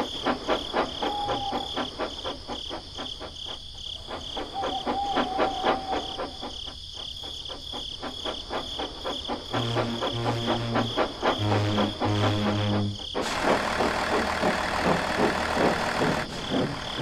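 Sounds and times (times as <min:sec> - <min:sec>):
crickets chirping: 0:00.0 - 0:17.0
high steady shrill: 0:09.5 - 0:17.0.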